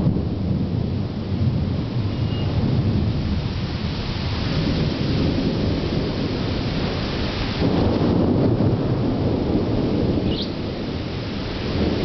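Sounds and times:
low rumble of thunder: 0.0 - 12.0
steady rain: 0.0 - 12.0.

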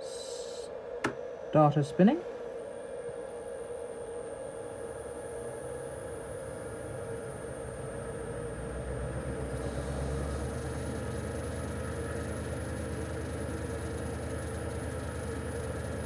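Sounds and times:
metal lathe humming: 9.1 - 16.0.

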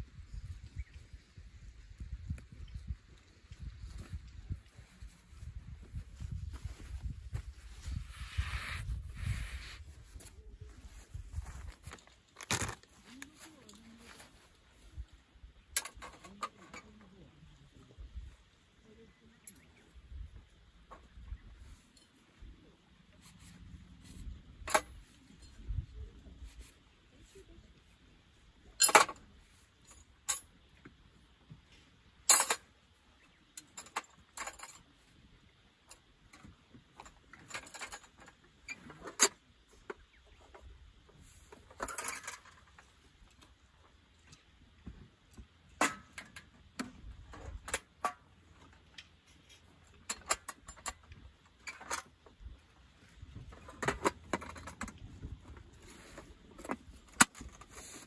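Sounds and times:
rope rustling: 3.8 - 14.9
metal tent stakes clanking: 11.2 - 14.4, 15.6 - 17.1, 23.3 - 25.6, 28.7 - 30.6, 32.3 - 32.7, 35.9 - 40.6, 41.2 - 43.4, 45.6 - 52.2, 53.2 - 58.0.

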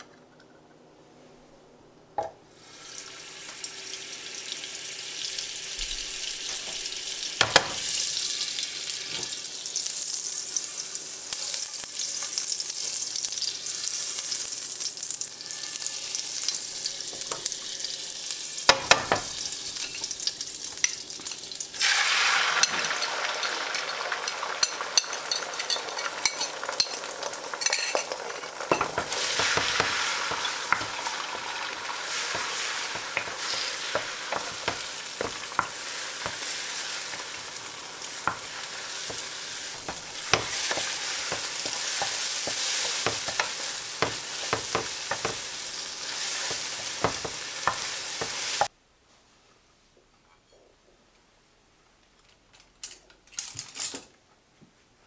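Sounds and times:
eggs sizzling: 2.5 - 48.7
butter sizzling in a frying pan: 2.6 - 48.7
spatula scraping a pan: 15.3 - 17.2, 28.7 - 48.7.

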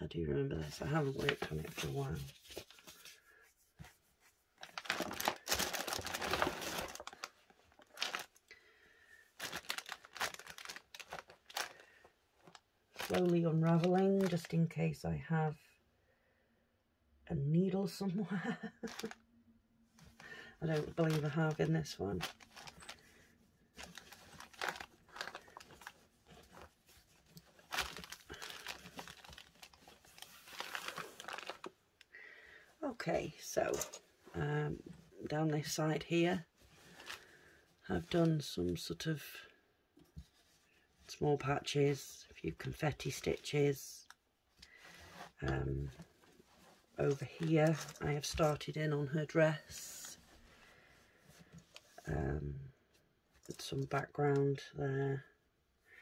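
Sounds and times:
crinkling rustle of fabric: 0.6 - 8.5, 9.3 - 14.8, 18.4 - 19.2, 19.9 - 32.1, 32.8 - 39.0, 42.6 - 52.1.

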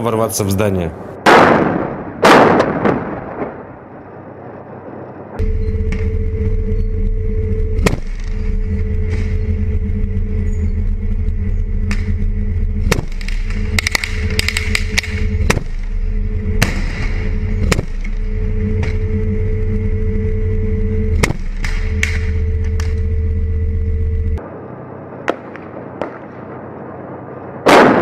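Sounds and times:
heavy vehicle engine droning: 5.3 - 26.0
gunshots and bangs: 12.8 - 19.2, 21.1 - 23.0.

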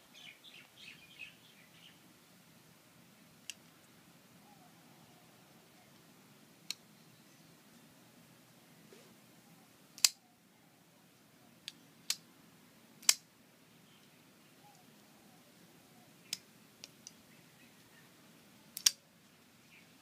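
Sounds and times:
folding knife clicks and snaps: 10.0 - 10.2, 13.0 - 13.2, 18.8 - 19.0.

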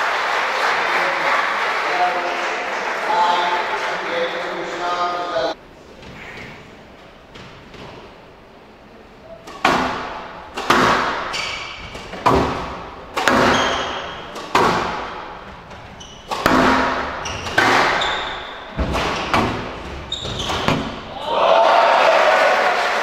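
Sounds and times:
squash ball struck with echo: 9.4 - 21.2
shoe squeaks: 11.3 - 11.9, 13.4 - 14.4, 15.9 - 21.1.

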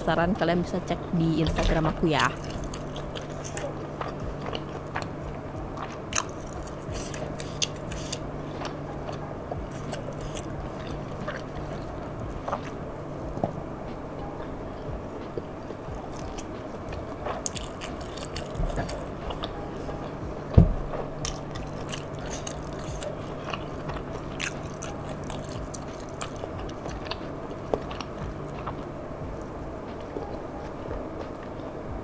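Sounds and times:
faint steady hum: 0.0 - 32.0
person chewing food: 2.2 - 32.0
loud thump: 20.6 - 21.0.

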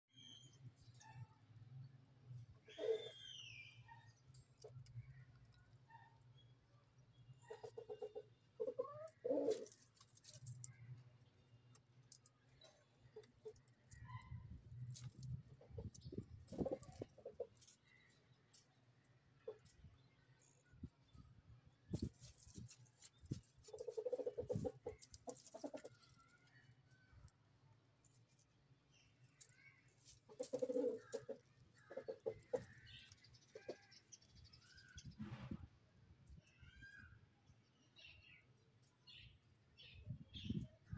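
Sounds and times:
beaks pecking dirt: 7.4 - 19.8, 22.0 - 27.4, 28.0 - 35.1
chickens clucking: 7.5 - 9.8, 23.7 - 25.9, 30.2 - 33.9.

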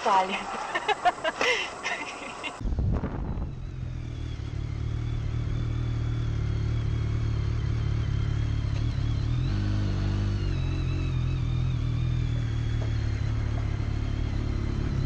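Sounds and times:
motorcycle engine running: 3.1 - 15.0.

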